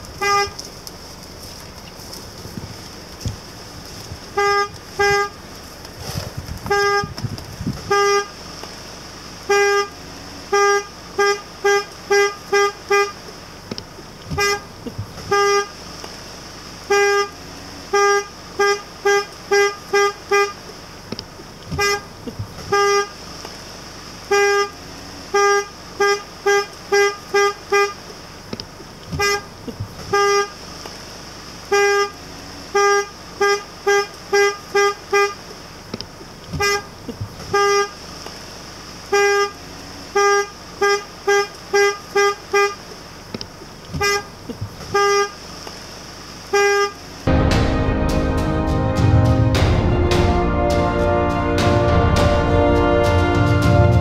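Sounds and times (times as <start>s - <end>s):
car horn short beeps: 0.2s - 0.6s, 4.3s - 5.4s, 6.7s - 7.2s, 7.8s - 8.4s, 9.5s - 13.2s, 14.3s - 15.8s, 16.9s - 20.6s, 21.7s - 22.1s, 22.7s - 23.2s, 24.3s - 28.0s, 29.1s - 30.6s, 31.7s - 35.4s, 36.5s - 36.9s, 37.5s - 38.0s, 39.1s - 42.8s, 43.9s - 44.3s, 44.9s - 45.4s, 46.5s - 47.0s.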